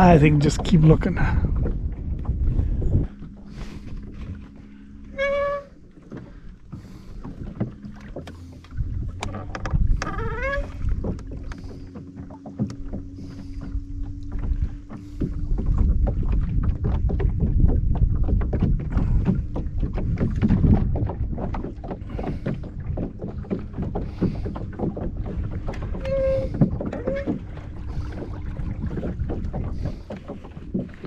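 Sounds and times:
low rumble: 0:00.0 - 0:31.0
water lapping against boat hull: 0:00.0 - 0:31.0.

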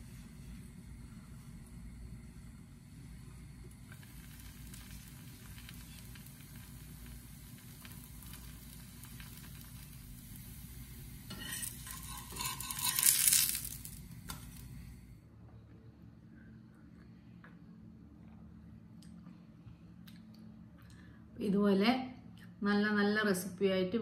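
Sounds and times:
pancake sizzling in a pan: 0:00.0 - 0:15.0.

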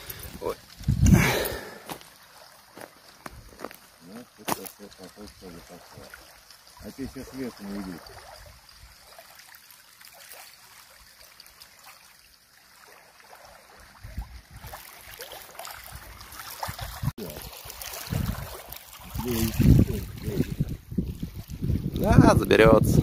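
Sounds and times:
wind buffeting microphone: 0:00.0 - 0:01.6, 0:17.9 - 0:23.0.

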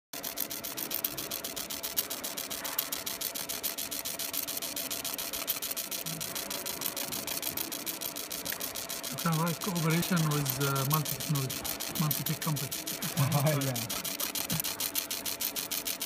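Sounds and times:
laser engraver hissing crackle: 0:00.2 - 0:16.0
faint hum: 0:00.3 - 0:16.0.

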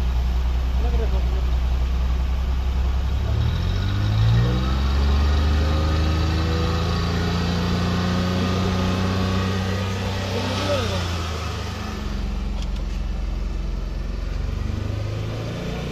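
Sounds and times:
car engine revving: 0:00.8 - 0:15.9.

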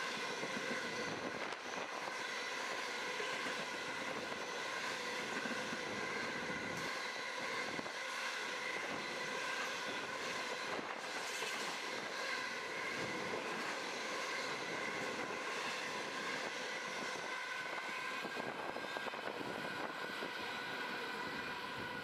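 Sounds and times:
freight train wheels on rail: 0:00.0 - 0:22.0.

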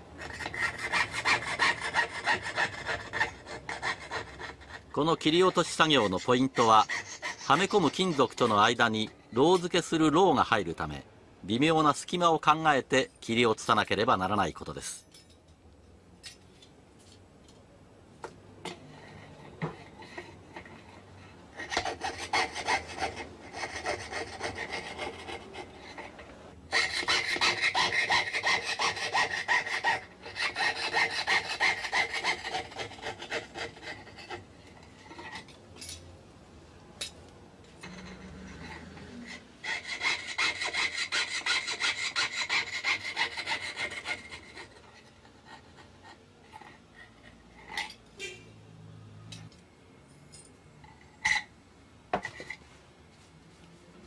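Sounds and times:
hand saw cutting metal plate: 0:00.2 - 0:04.9, 0:21.6 - 0:34.4, 0:38.2 - 0:45.0.

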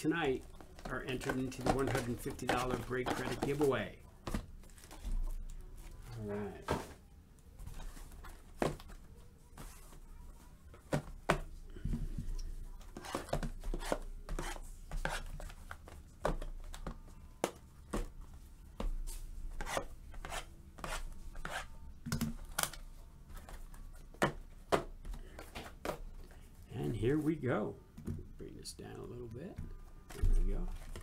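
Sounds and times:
boxes scraping and rustling: 0:00.3 - 0:03.8.

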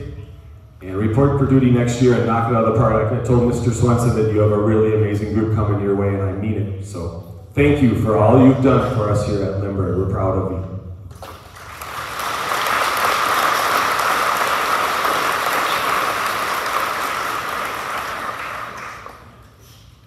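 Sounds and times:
audience applauding: 0:11.2 - 0:19.6.

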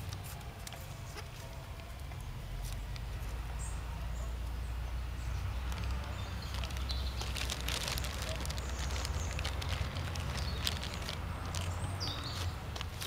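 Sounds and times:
rustling and handling noise: 0:00.0 - 0:01.9, 0:05.6 - 0:13.0
paper bag crackling: 0:05.6 - 0:13.0.

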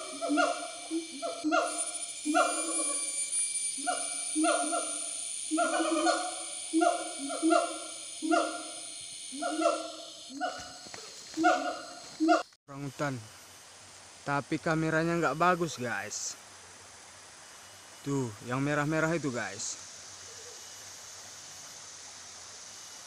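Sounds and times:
gibbons hooting: 0:00.0 - 0:03.1, 0:03.8 - 0:10.7, 0:11.4 - 0:12.4
steady high-pitched buzz: 0:00.0 - 0:23.0.

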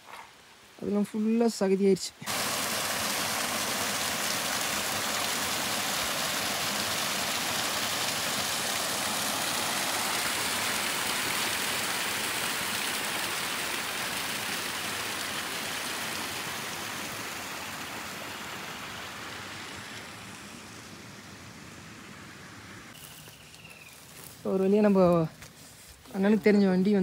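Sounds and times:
stream cascading over rocks: 0:02.2 - 0:23.0.

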